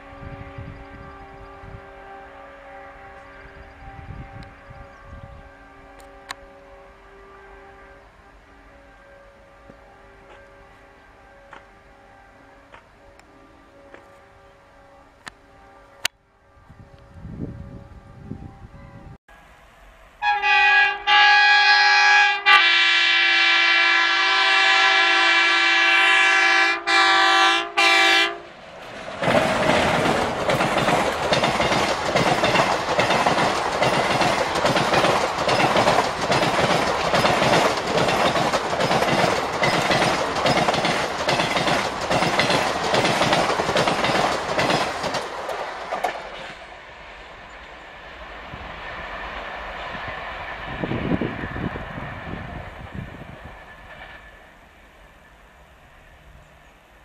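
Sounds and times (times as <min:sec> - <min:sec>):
locomotive air horn blast: 0:00.0 - 0:28.6
train wheels clattering over rails: 0:28.8 - 0:46.7.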